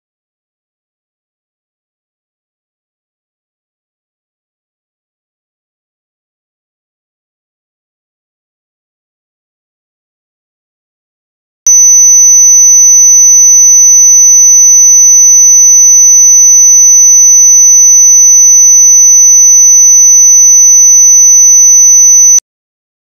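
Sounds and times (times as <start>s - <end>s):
high-pitched sine test tone: 11.7s - 22.5s.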